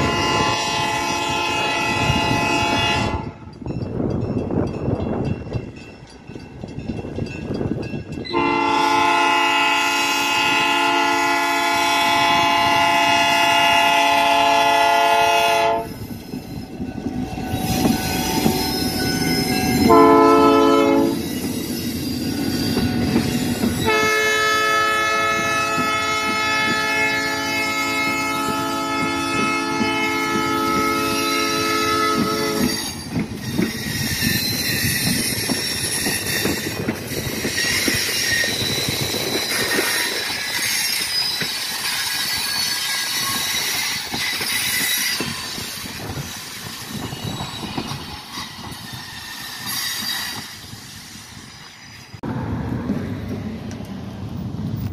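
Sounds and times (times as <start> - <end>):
locomotive air horn: 0.0 - 3.5, 8.3 - 16.0, 19.5 - 21.3, 23.8 - 32.8
train wheels rumbling on rails: 0.0 - 54.9
high wheel squeal: 15.8 - 25.6, 29.8 - 52.2.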